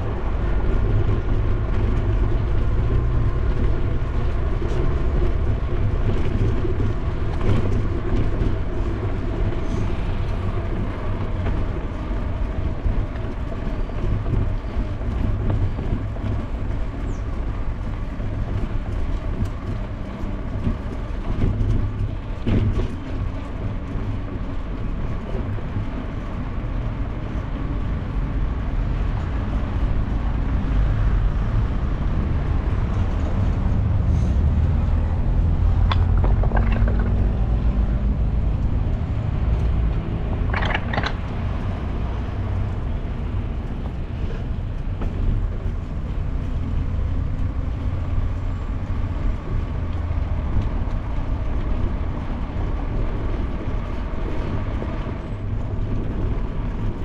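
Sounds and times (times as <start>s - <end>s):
street traffic: 0.0s - 57.0s
wind rumble on microphone: 0.0s - 57.0s
bicycle tyres on paving: 32.8s - 37.6s, 40.4s - 42.0s.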